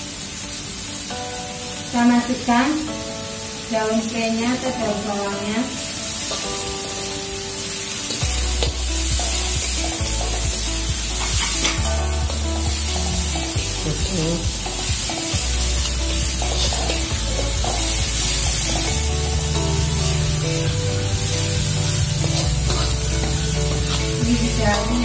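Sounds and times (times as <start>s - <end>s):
background music: 0.0s - 25.0s
spice paste sizzling: 0.0s - 25.0s
stirring scraping against pan: 8.1s - 13.5s, 14.6s - 25.0s.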